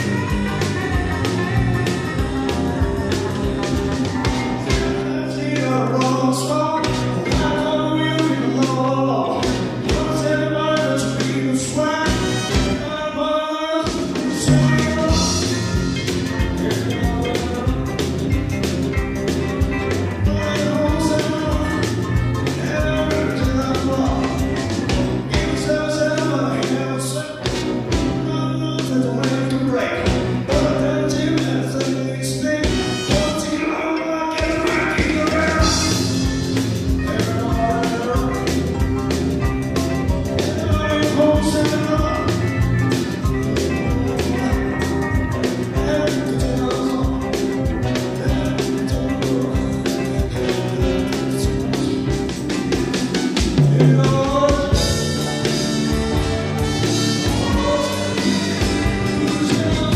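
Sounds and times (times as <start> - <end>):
drum strokes: 0.0 - 13.1, 13.8 - 26.8, 34.3 - 59.9
bass line: 0.0 - 59.9
live rock band playing: 0.0 - 59.9
person singing: 0.0 - 59.9
drum hits: 12.0 - 13.0, 13.9 - 26.4.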